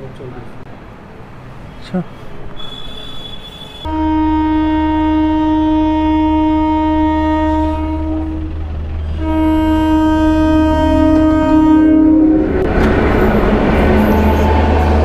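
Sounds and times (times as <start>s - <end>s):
locomotive horn blasts: 2.6s - 12.7s
low steady rumble: 5.1s - 14.1s.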